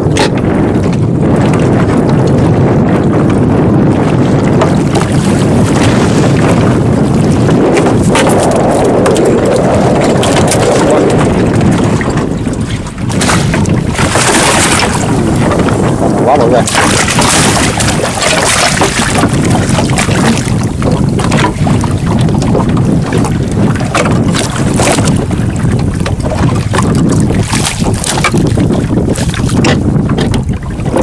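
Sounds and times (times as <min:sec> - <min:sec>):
wind buffeting microphone: 0:00.0 - 0:31.0
fish splashing in landing net: 0:13.1 - 0:15.0, 0:16.7 - 0:20.5.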